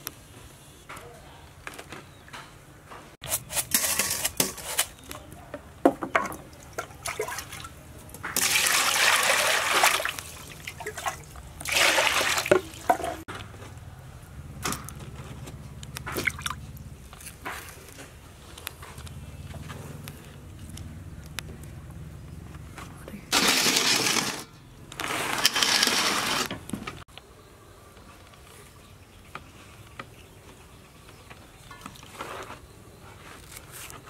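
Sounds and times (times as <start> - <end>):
water splashing into steel bowl: 6.7 - 7.7, 8.3 - 13.2.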